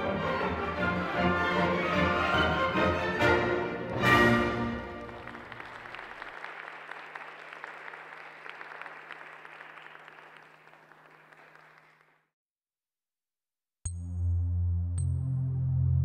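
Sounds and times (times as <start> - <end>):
audience applauding: 3.8 - 12.3.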